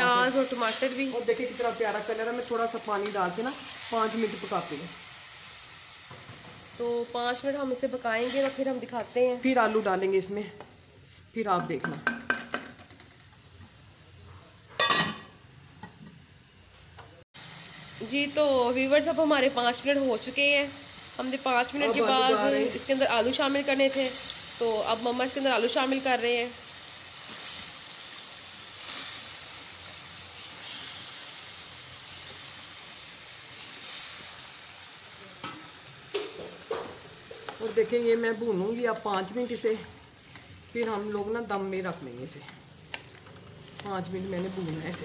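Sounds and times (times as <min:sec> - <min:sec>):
masala sizzling in a pot: 0:00.0 - 0:45.0
metal lid clanking on pot: 0:14.8 - 0:15.3.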